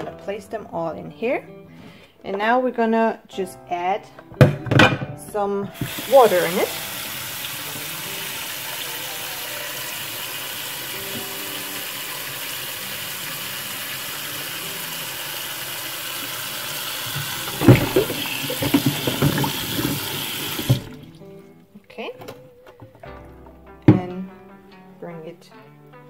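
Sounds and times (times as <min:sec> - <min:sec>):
tap running into saucepan: 0:05.7 - 0:08.9, 0:11.0 - 0:11.8, 0:16.9 - 0:21.1.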